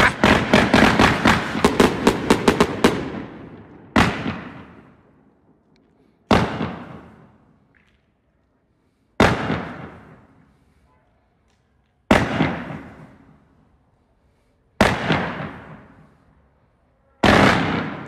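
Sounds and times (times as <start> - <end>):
firework bangs: 0.0 - 5.1, 6.2 - 7.6, 9.2 - 10.5, 12.1 - 13.6, 14.8 - 16.2, 17.2 - 18.0.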